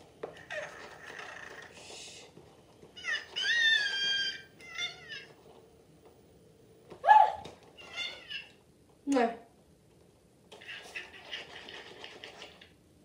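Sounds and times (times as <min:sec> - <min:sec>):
electronic toy owl chirping: 0:03.4 - 0:04.5.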